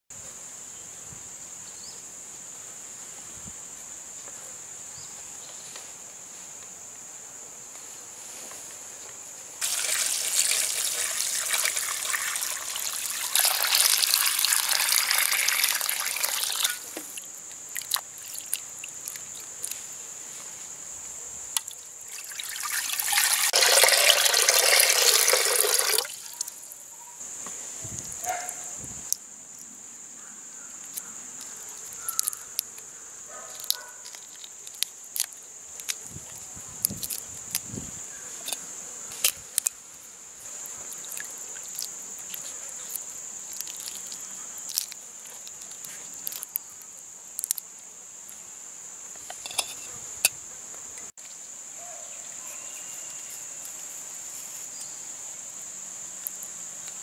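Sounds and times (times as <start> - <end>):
high insect drone: 0.1 - 57.0
water pouring into metal bowl: 9.6 - 16.8, 22.1 - 26.4
water drips and splashes: 9.6 - 19.8, 21.6 - 26.8, 40.9 - 41.9.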